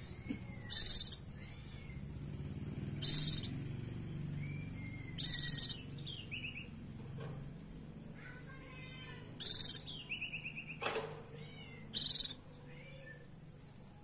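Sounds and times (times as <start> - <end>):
bird high buzzy calls: 0.0 - 6.8, 8.7 - 10.8, 11.8 - 13.3.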